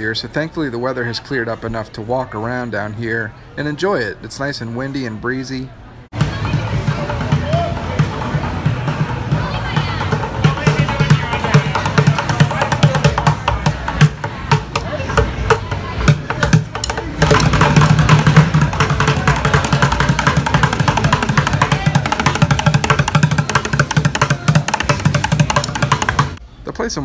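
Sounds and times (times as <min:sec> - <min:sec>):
voices: 0:00.0 - 0:27.0
music with busy drum beat: 0:06.1 - 0:26.4.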